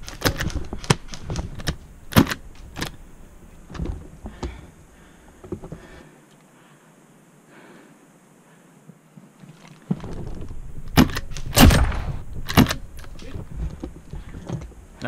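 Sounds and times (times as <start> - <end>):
airsoft pistol firing: 11.0 - 12.9.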